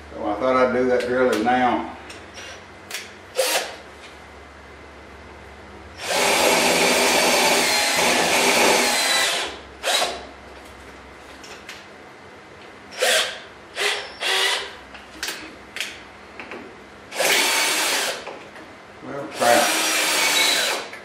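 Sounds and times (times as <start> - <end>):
drill whirring in short bursts: 3.3 - 3.8, 6.0 - 10.2, 12.9 - 14.8, 17.1 - 18.2, 19.3 - 20.9
cordless drill boring into steel: 6.0 - 10.1, 13.0 - 14.7, 17.2 - 18.2, 19.4 - 20.9.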